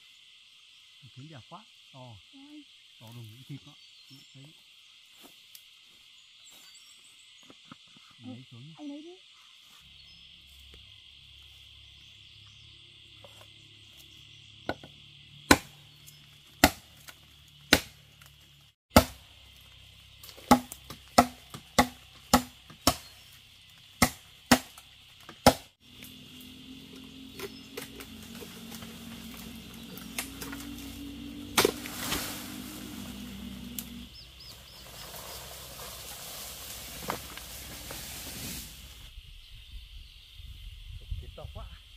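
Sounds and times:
high insect drone: 0.0 - 41.9
blade chopping wood: 15.5 - 15.7, 16.6 - 18.0, 18.9 - 19.2, 20.3 - 23.2, 24.0 - 25.7, 31.5 - 32.4.

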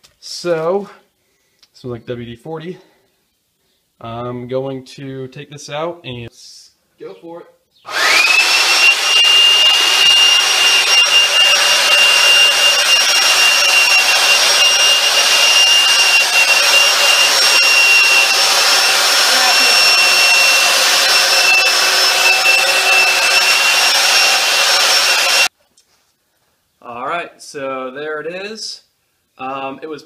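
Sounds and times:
vacuum motor high whine: 7.9 - 25.5.

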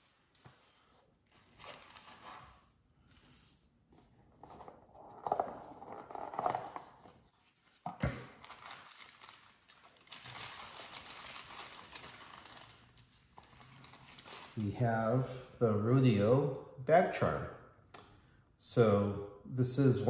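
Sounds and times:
tissue paper rustling: 0.0 - 3.6, 8.4 - 14.6.

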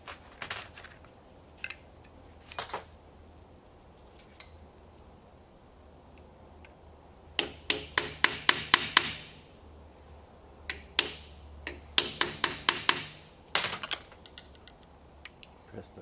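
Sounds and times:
hammer striking metal: 7.4 - 9.4, 10.7 - 14.8.

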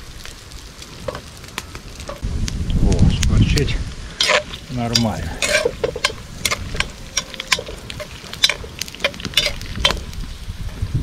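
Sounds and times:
meat sizzling in oil: 0.0 - 11.0
metal spoon scraping pot: 4.2 - 10.0.

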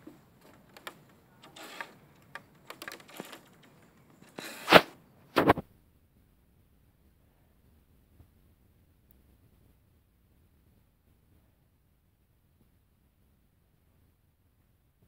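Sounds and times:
ropes course gear clicking and knocking: 0.0 - 4.8.

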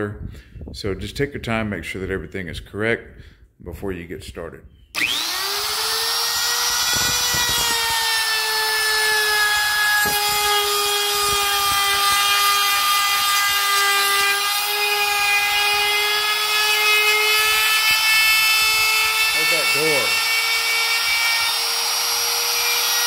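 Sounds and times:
router motor whine cutting wood: 5.0 - 23.0.

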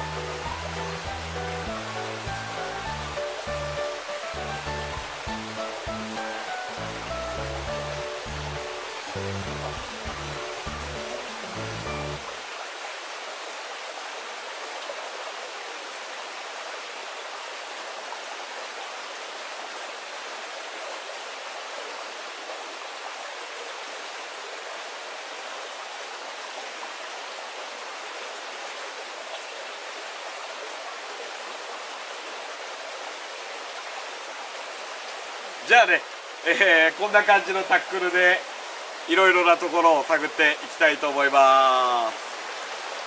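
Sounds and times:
stream flowing over rocks: 0.0 - 43.0.

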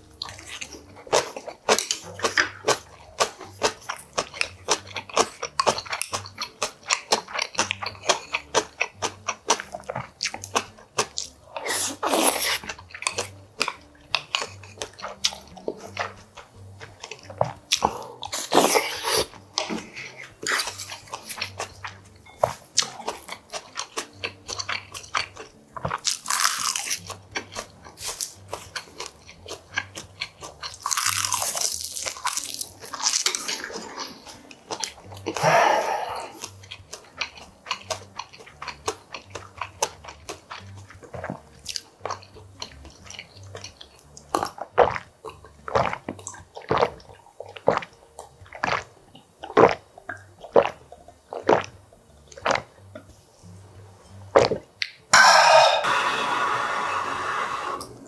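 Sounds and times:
crisp chewing crunches: 0.0 - 53.1
slurping soup: 11.4 - 13.8, 17.3 - 21.7, 33.3 - 36.6, 55.2 - 58.0.

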